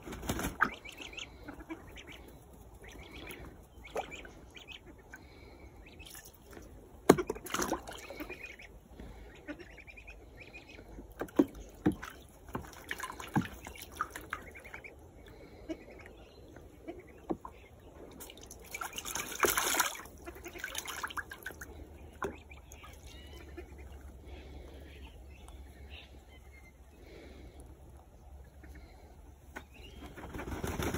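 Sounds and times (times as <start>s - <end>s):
ducks splashing in water: 0.0s - 25.2s.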